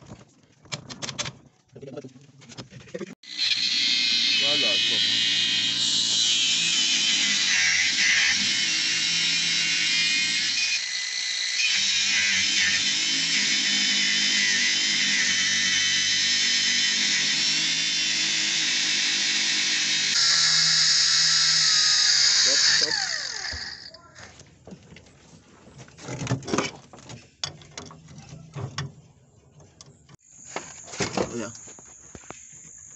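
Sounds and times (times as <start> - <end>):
angle grinder cutting steel: 3.2 - 24.0.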